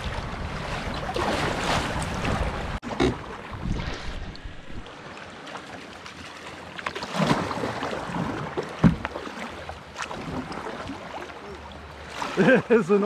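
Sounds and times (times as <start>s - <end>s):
paddle splashes: 0.0s - 13.0s
water washing past hull: 0.0s - 13.0s
knocks on kayak: 8.8s - 9.1s.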